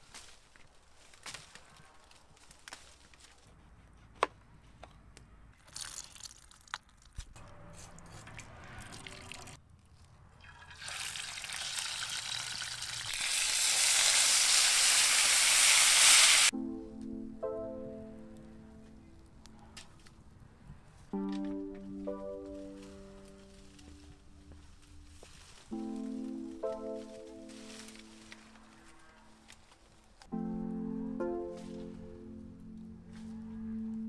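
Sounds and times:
fish frying in hot oil: 10.5s - 16.5s
music: 16.5s - 19.8s, 21.1s - 34.0s.

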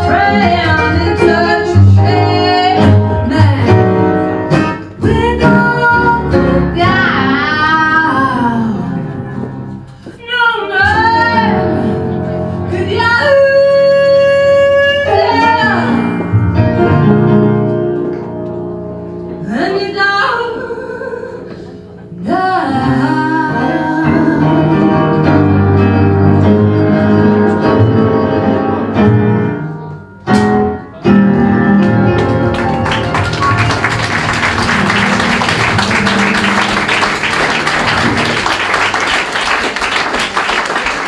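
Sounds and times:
woman singing blues: 0.0s - 4.2s, 5.0s - 9.2s, 10.0s - 16.1s, 19.4s - 25.4s
acoustic guitar: 0.0s - 40.4s
piano: 0.0s - 41.0s.

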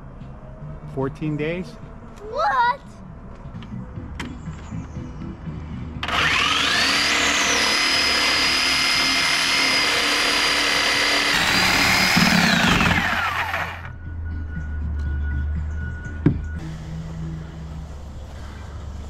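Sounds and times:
power tool motor whining: 6.0s - 13.9s.

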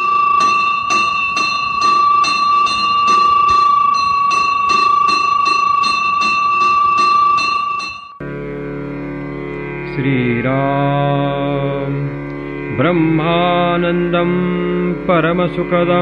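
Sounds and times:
temple bell ringing: 0.0s - 8.4s.

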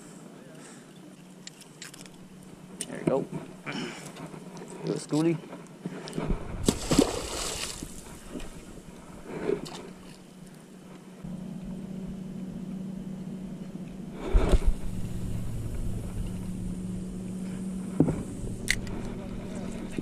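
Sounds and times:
low engine hum: 6.2s - 20.0s
fish splashing into water: 6.6s - 8.6s.

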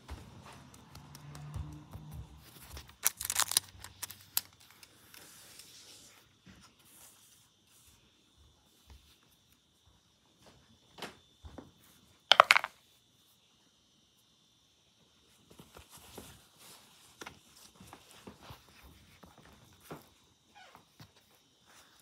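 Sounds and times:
die clattering into plastic container: 12.3s - 12.7s.

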